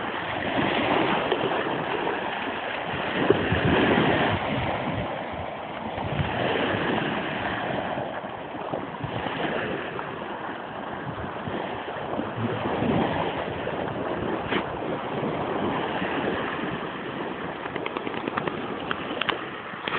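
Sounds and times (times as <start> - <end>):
small waves washing onto beach: 0.0 - 19.9
wind rumbling on microphone: 0.0 - 19.9.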